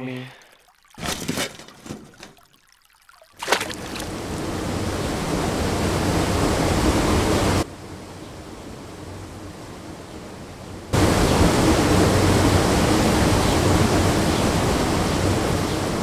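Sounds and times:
sudden water splash: 0.4s - 4.8s
loud rushing water: 3.2s - 7.7s, 10.8s - 16.0s.

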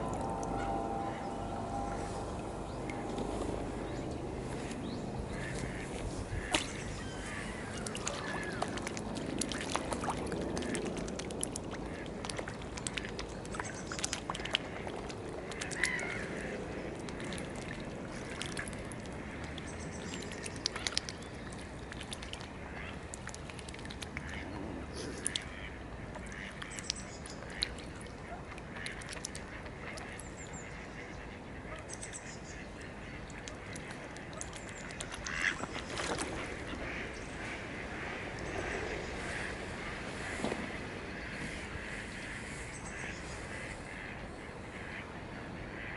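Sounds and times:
ducks quacking: 0.0s - 8.9s, 32.5s - 45.9s
water splashes and drips: 0.0s - 44.8s
low background rumble: 0.0s - 45.9s.

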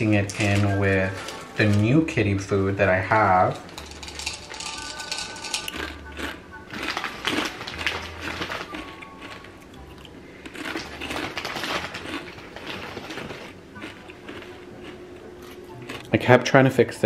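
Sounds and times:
items clinking on kitchen counter: 0.0s - 1.9s, 3.5s - 5.8s.

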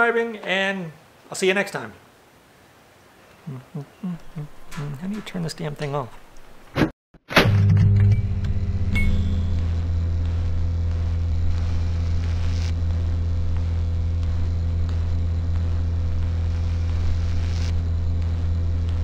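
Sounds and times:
steady low hum: 3.5s - 6.6s, 7.4s - 19.0s.

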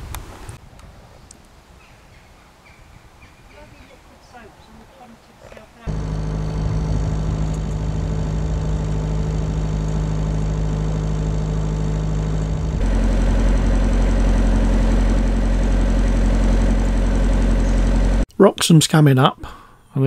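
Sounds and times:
boat engine humming: 5.6s - 18.3s.

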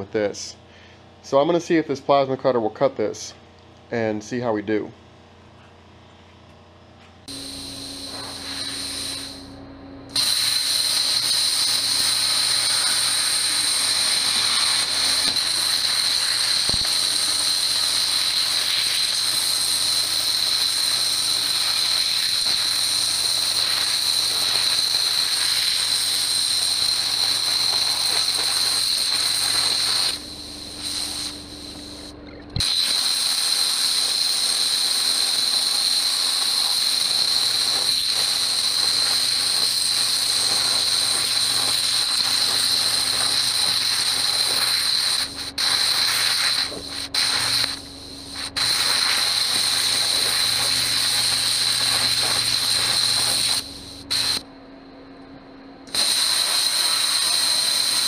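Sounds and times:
plasma cutter hissing: 7.3s - 54.4s, 55.9s - 58.0s
plasma cutter click: 10.1s - 30.2s, 30.8s - 47.8s, 48.4s - 54.4s, 55.9s - 58.0s.

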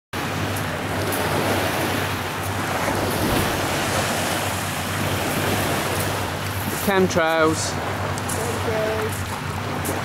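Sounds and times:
wind on microphone: 0.2s - 6.9s
waves washing on shore: 0.2s - 10.0s.

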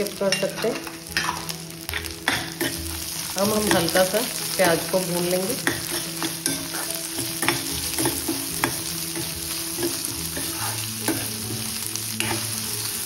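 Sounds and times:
onions sizzling in hot oil: 0.0s - 13.0s
ladle clinking and scraping pan: 5.6s - 12.6s.

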